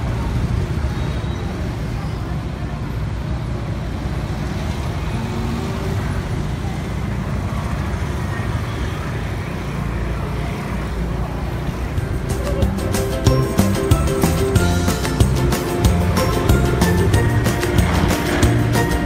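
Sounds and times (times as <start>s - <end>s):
road traffic: 0.0s - 19.0s
background music: 11.9s - 19.0s.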